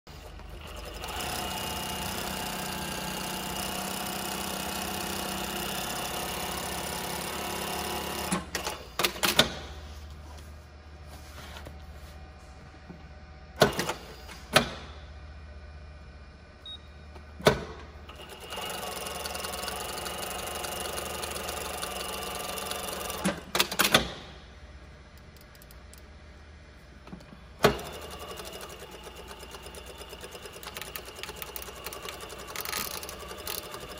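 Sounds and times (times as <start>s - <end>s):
industrial sewing machine stitching: 0.1s - 9.6s, 18.1s - 24.1s, 27.6s - 33.9s
sharp mechanical clicks: 25.1s - 26.1s.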